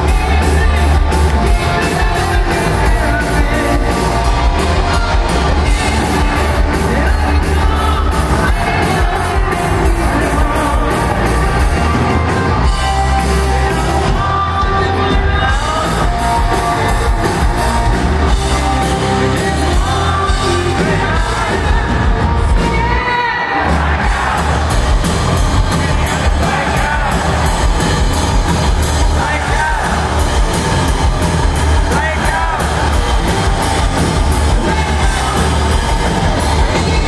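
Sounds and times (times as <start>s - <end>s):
person singing: 0.0s - 24.7s, 34.5s - 37.0s
hard rock band playing: 0.0s - 37.0s.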